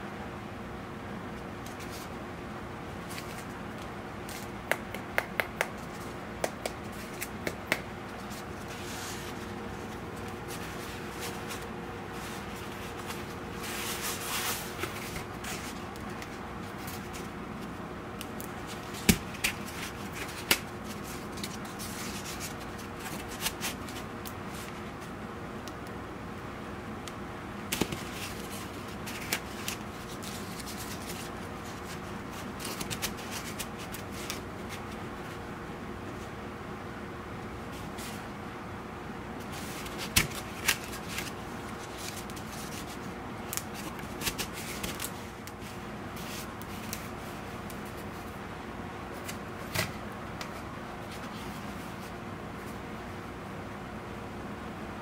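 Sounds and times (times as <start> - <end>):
foam clicks and taps: 4.6 - 5.8, 6.4 - 7.9.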